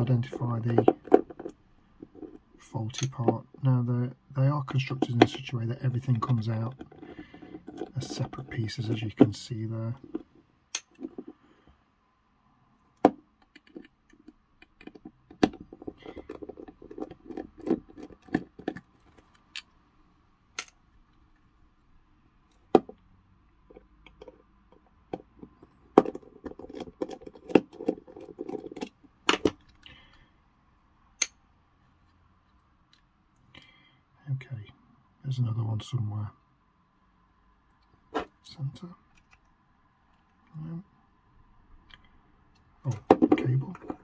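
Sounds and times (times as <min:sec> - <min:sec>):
metal tapping on plastic: 0:00.7 - 0:02.4, 0:13.0 - 0:18.9, 0:23.7 - 0:29.6.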